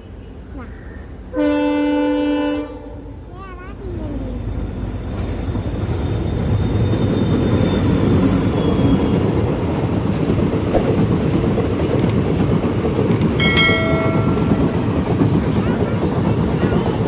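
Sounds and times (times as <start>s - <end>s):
short train horn: 1.4s - 3.0s
train wheels rumbling on rails: 3.2s - 17.0s.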